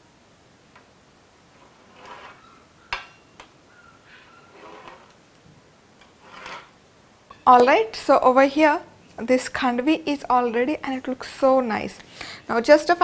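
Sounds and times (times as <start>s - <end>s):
pizza cutter scraping: 1.6s - 2.6s, 4.5s - 5.1s, 6.2s - 6.7s.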